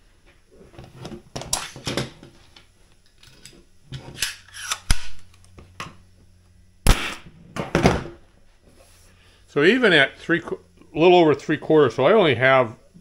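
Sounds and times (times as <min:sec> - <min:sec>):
nail gun firing: 0:06.9 - 0:07.3.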